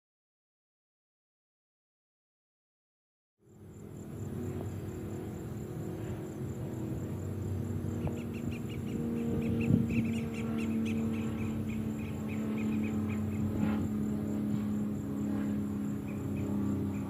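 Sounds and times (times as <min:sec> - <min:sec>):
distant diesel locomotive hum: 0:03.4 - 0:17.0
insect chirping in quick pulses: 0:03.7 - 0:17.0.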